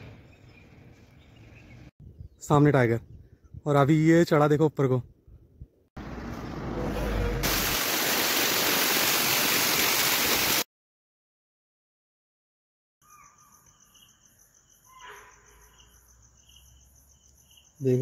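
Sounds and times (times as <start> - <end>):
loud rushing hiss: 7.4 - 10.6
crickets chirping: 13.0 - 18.0.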